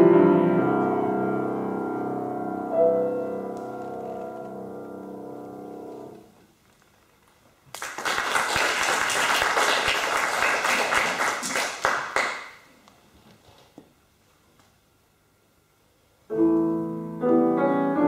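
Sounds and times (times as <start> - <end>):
audience applauding: 7.7 - 12.7.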